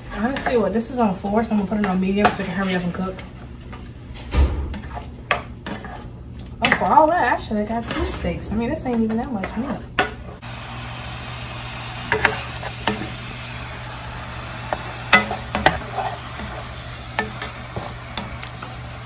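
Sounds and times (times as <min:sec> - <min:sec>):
spatula scraping a pan: 0:00.0 - 0:10.4, 0:11.7 - 0:19.0
steak sizzling in a frying pan: 0:10.4 - 0:19.0.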